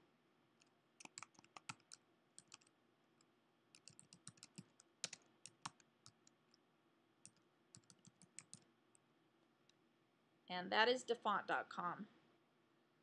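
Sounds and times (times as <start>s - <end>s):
computer keyboard typing: 0.6s - 2.7s, 3.7s - 6.6s, 7.2s - 8.7s.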